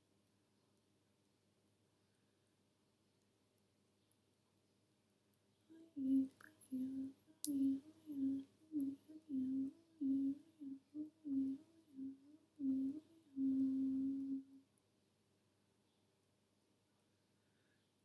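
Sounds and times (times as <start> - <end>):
woman humming syllables: 5.7 - 14.7.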